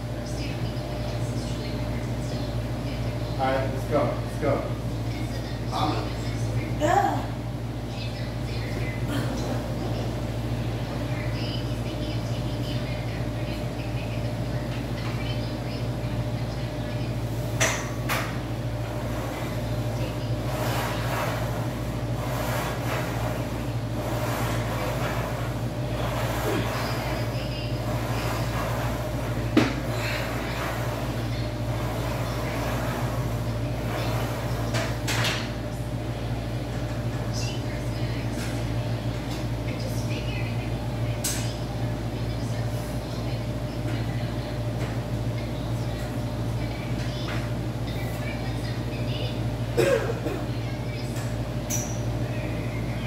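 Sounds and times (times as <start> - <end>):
low machine hum: 0.0 - 53.0.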